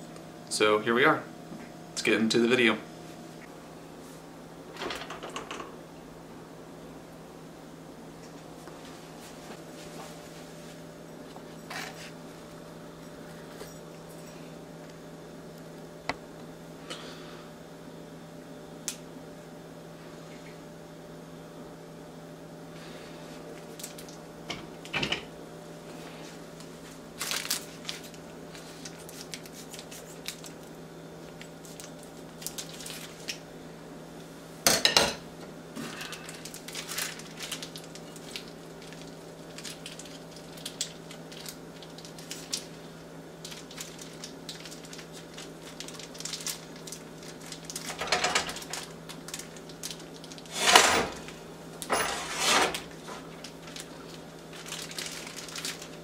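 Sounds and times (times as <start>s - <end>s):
steady low hum: 0.0s - 56.0s
plastic wrapping rustling: 26.6s - 33.4s, 35.8s - 56.0s.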